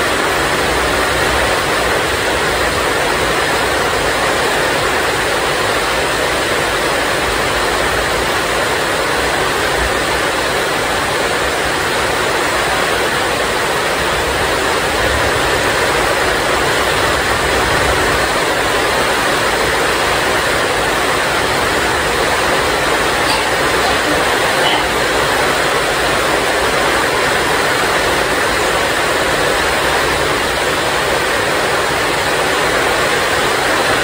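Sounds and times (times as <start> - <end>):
heavy rain pouring: 0.0 - 34.0.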